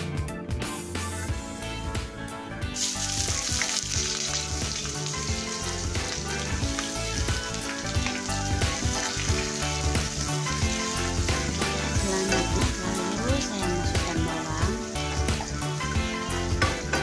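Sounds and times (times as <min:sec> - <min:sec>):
background music: 0:00.0 - 0:17.0
shallots sizzling in hot oil: 0:02.8 - 0:17.0.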